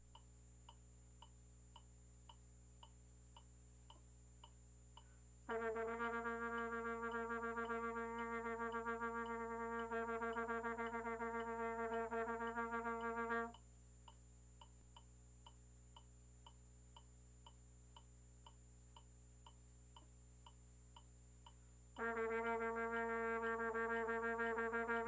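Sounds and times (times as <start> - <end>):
faint ticking: 0.1 - 5.7, 12.9 - 22.2
trombone holding a long note: 5.5 - 13.6, 22.0 - 25.0.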